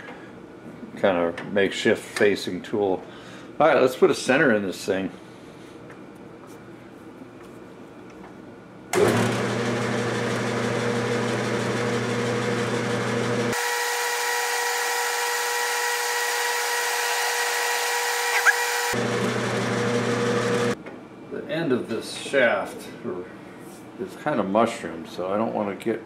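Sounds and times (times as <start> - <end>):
metal lathe running: 9.0 - 20.8.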